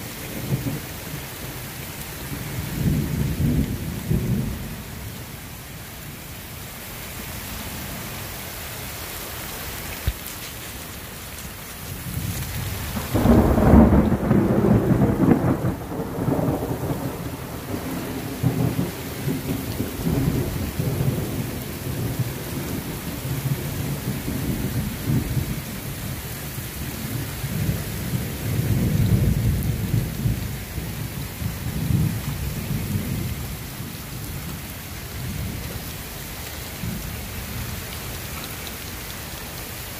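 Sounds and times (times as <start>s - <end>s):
rain hissing: 0.0s - 39.9s
thunder clap and rumbles: 2.5s - 4.8s, 12.0s - 25.9s, 27.0s - 34.6s.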